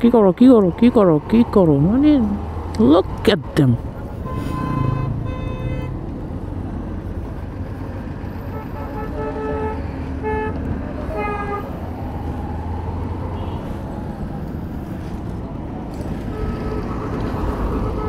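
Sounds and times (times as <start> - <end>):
wind: 0.0 - 18.0
vehicle horns honking: 4.1 - 6.0, 8.4 - 11.7, 13.3 - 13.8, 16.2 - 18.0.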